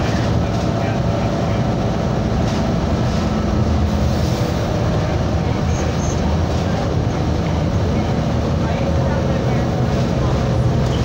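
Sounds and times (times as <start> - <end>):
bus engine rumble and road noise: 0.0 - 11.0.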